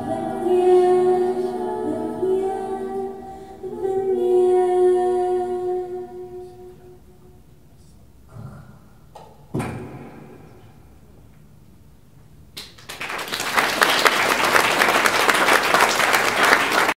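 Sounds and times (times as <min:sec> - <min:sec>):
audience applause: 0:12.7 - 0:17.0.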